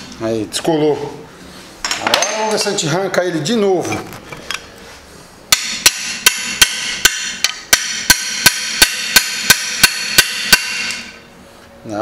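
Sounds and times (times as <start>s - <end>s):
hammer striking steel wrench: 5.5s - 11.2s.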